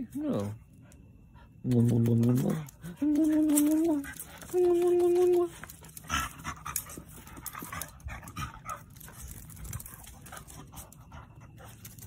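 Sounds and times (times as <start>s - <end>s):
dogs panting: 0.6s - 12.0s
dogs scuffling: 1.7s - 12.0s.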